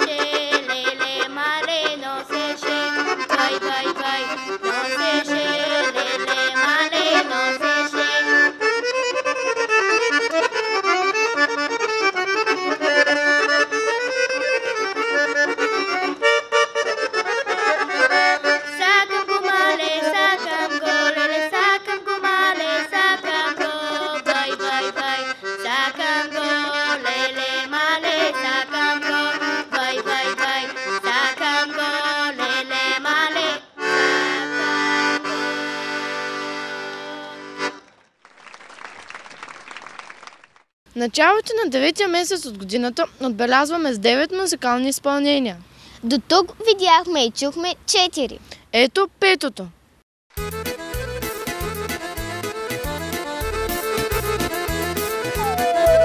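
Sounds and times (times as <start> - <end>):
accordion playing lively folk tune: 0.0 - 38.0, 50.3 - 56.0.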